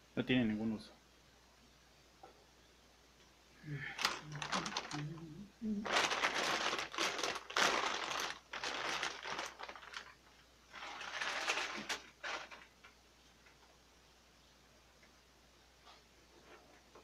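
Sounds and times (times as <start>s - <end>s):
plastic bag crinkling: 4.0s - 12.9s.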